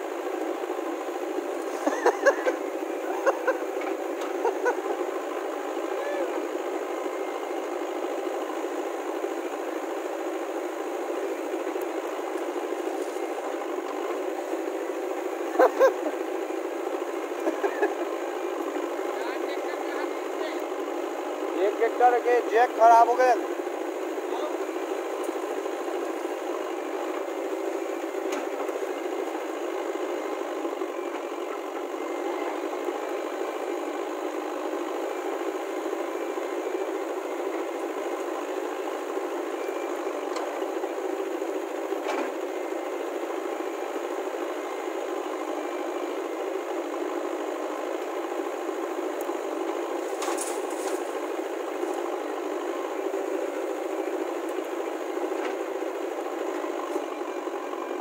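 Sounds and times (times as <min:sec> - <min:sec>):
diesel engines running: 0:00.0 - 0:58.0.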